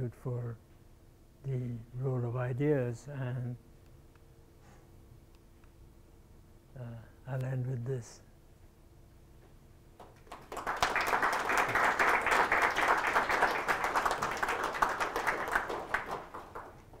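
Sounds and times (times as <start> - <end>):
audience applauding: 10.0 - 17.0.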